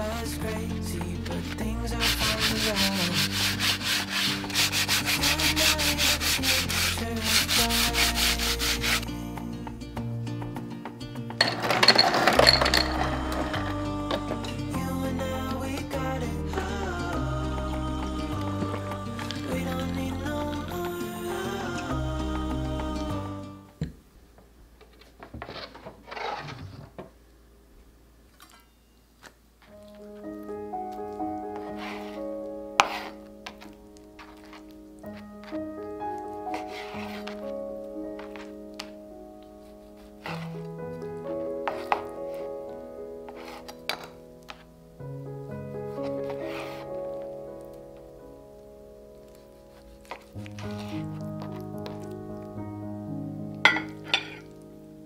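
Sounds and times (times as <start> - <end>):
soft music: 0.0 - 23.9, 29.6 - 55.0
sandpaper sanding wood: 2.0 - 9.1
glass of ice cubes clinking: 11.4 - 13.4
rustling clattering bursts: 11.4 - 13.7.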